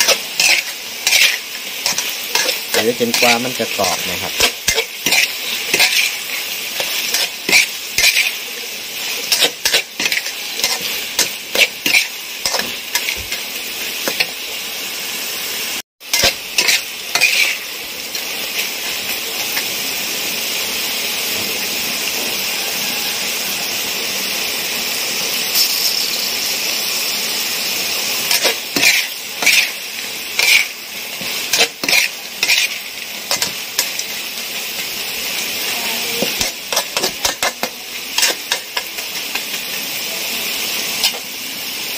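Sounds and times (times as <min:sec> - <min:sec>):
spatula scraping metal pan: 0:00.0 - 0:08.5, 0:09.2 - 0:13.4, 0:16.1 - 0:17.7, 0:28.3 - 0:34.0
beetles sizzling in a pan: 0:00.0 - 0:41.9.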